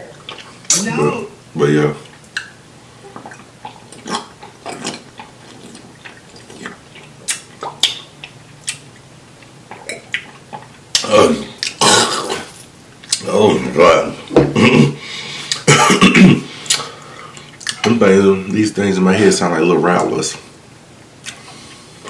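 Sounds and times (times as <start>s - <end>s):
wet chewing and lip-smacking: 3.2s - 11.8s, 16.6s - 17.9s.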